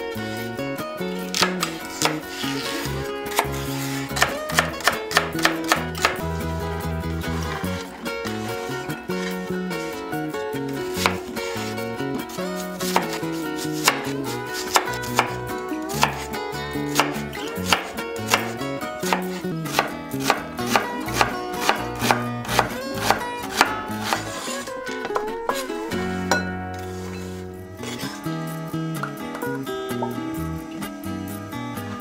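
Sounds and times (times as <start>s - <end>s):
background music: 0.0s - 32.0s
knife chopping on wooden board: 1.3s - 6.2s, 11.0s - 11.2s, 12.8s - 15.4s, 16.0s - 16.3s, 16.9s - 24.4s.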